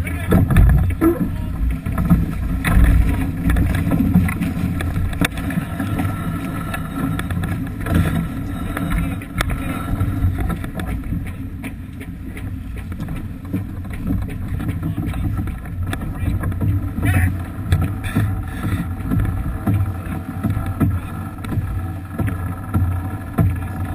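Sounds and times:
choppy water rushing along hull: 0.0 - 23.9
wind buffeting microphone: 0.0 - 23.9.

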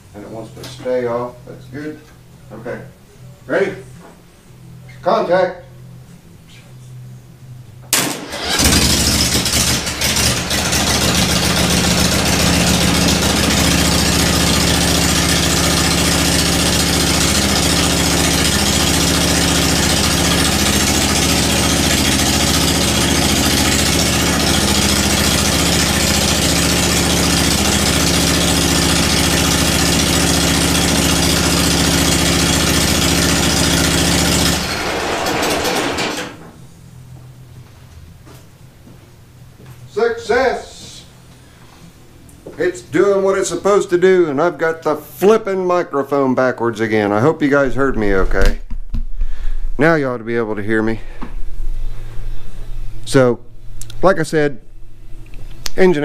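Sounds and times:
unmuffled engine running: 8.2 - 37.2.

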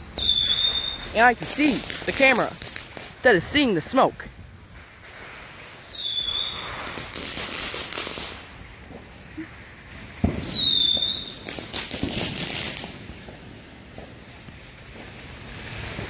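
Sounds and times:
firework crackling: 0.0 - 16.0
firework whistle falling: 0.1 - 1.2, 5.7 - 8.4, 10.2 - 12.9
firework bang: 4.6 - 16.0.

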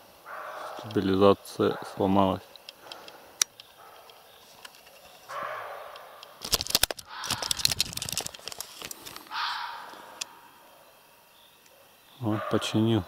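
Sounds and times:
camera handling clicks and rattles: 2.5 - 5.4, 6.2 - 9.3.

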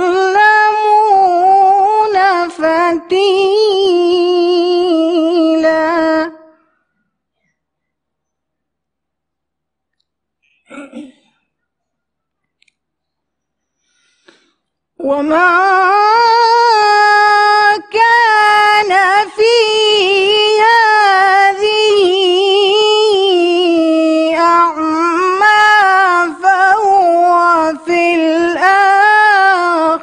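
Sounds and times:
woman reciting melodically: 0.0 - 6.8, 14.9 - 30.0.

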